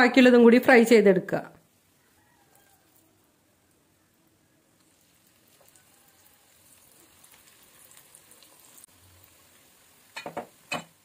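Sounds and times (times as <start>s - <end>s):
batter sizzling in hot oil: 4.8s - 11.0s.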